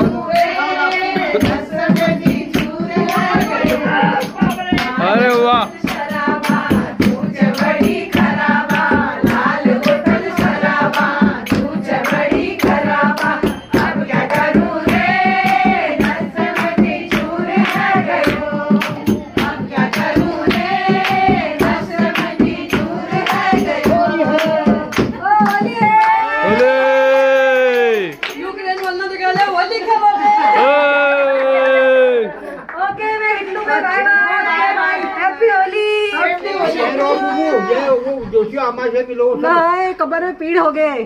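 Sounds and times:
hand clapping beat: 0.0s - 29.8s
women singing together: 0.0s - 30.8s, 32.5s - 37.8s.

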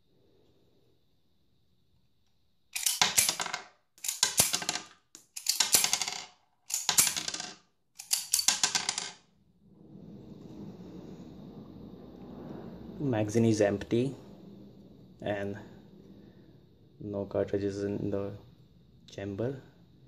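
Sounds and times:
pistol slide racking: 2.8s - 3.4s
cartridges clattering on wooden table: 2.8s - 9.2s.

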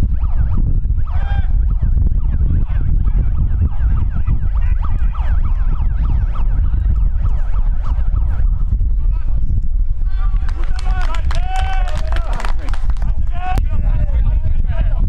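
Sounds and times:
wind rumble on microphone: 0.0s - 15.0s
players shouting: 10.1s - 13.6s.

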